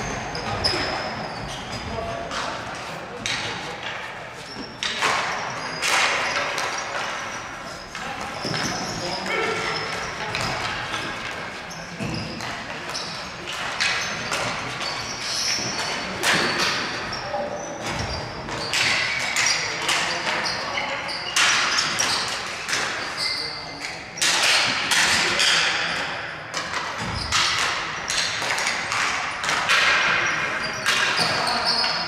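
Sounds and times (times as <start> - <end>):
shoes squeaking on floor: 0.0 - 24.2, 29.4 - 32.0
sticks and ball clacking: 2.3 - 9.2, 9.9 - 16.8.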